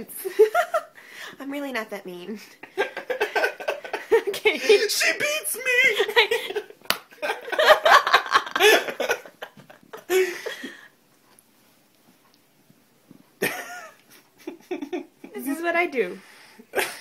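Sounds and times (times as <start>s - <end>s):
young woman laughing: 2.9s - 10.8s, 13.4s - 15.1s.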